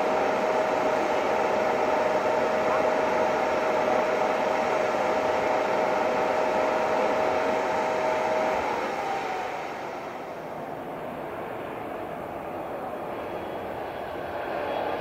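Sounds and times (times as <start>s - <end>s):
jet turbine rush: 0.0s - 15.0s
turbine whine: 0.0s - 15.0s.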